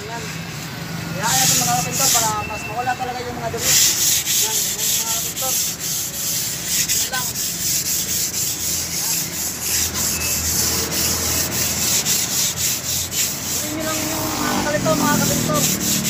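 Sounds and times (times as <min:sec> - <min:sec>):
sandpaper rubbing on wall: 0:01.2 - 0:16.0.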